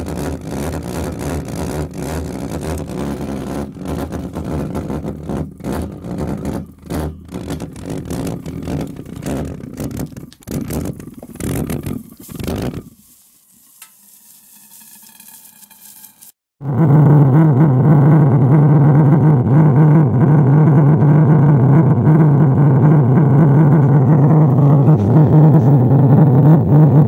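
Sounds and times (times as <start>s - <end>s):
faint hiss: 12.2s - 14.7s.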